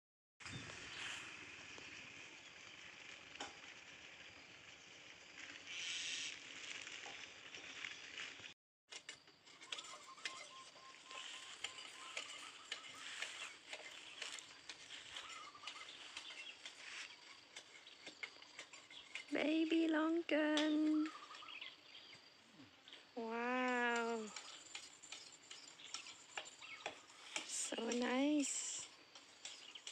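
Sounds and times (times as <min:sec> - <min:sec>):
birds chirping: 0:09.6 - 0:29.9.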